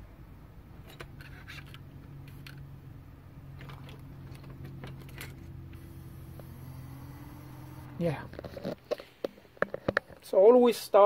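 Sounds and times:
steady low hum: 1.8s - 10.0s.

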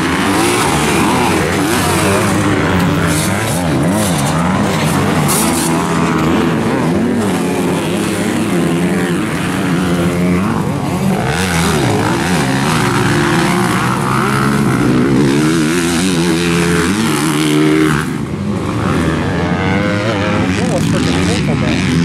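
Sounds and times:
dirt bike engines revving: 0.0s - 22.0s.

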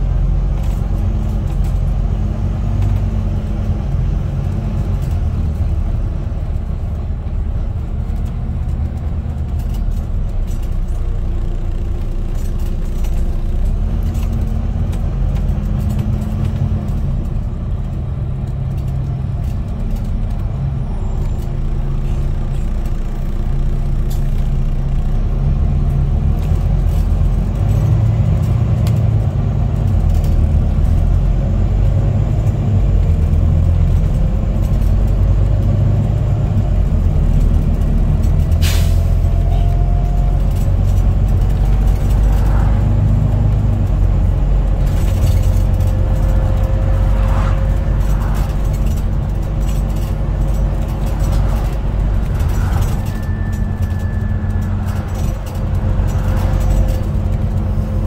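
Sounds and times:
bus engine and road drone: 0.0s - 58.0s
air brake hiss: 38.6s - 39.2s.

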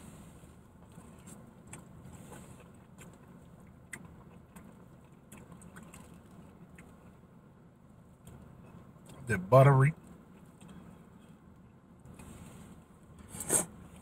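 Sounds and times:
faint low background rumble: 0.0s - 14.0s.

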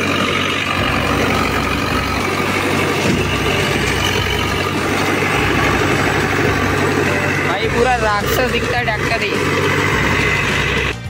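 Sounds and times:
diesel engine idling: 0.0s - 11.0s.

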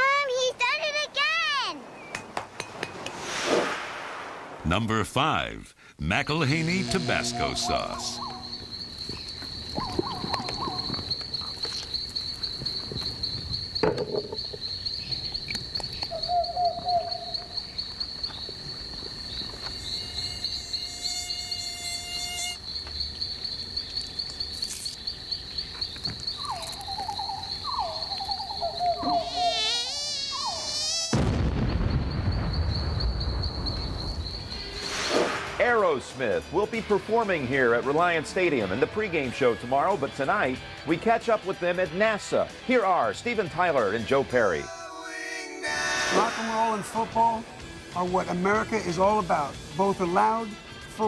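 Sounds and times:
crickets chirping: 6.0s - 51.0s
mosquito whining: 6.4s - 11.2s, 19.8s - 22.6s, 26.4s - 31.2s, 44.7s - 46.9s
sudden loud blast: 31.1s - 33.4s.

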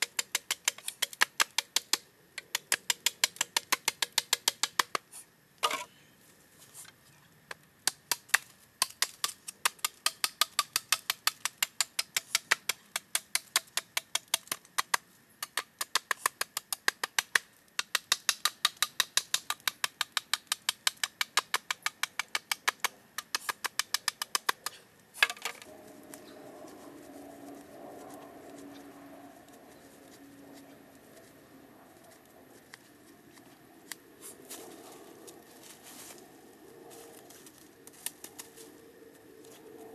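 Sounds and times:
blade chopping bamboo: 7.8s - 25.6s.

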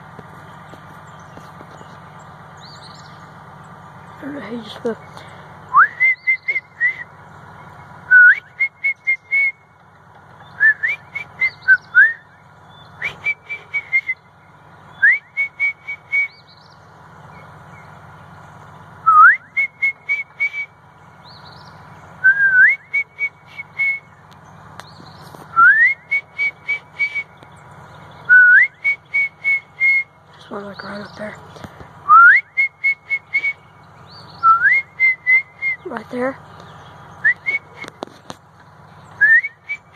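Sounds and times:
person whistling bird call: 5.7s - 7.1s, 8.1s - 9.6s, 10.6s - 12.3s, 13.0s - 14.2s, 15.0s - 16.4s, 19.0s - 20.8s, 22.2s - 24.1s, 25.5s - 27.3s, 28.3s - 30.1s, 32.1s - 33.6s, 34.4s - 35.9s, 37.2s - 38.0s, 39.2s - 39.9s.

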